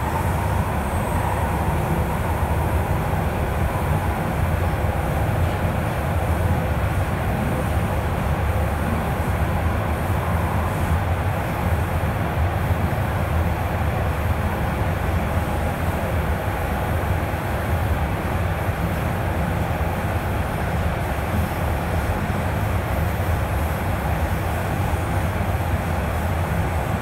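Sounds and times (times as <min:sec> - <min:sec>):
subway train rumble and hiss: 0:00.0 - 0:27.0.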